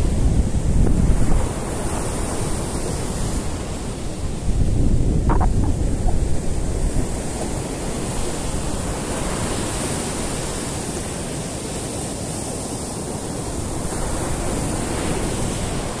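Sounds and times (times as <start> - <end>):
wind buffeting microphone: 0.0 - 10.2
surf breaking on beach: 5.0 - 11.4.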